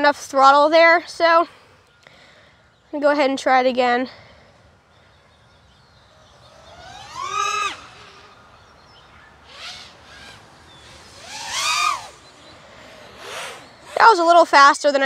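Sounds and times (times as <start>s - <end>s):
drone motors whining: 4.6s - 14.4s.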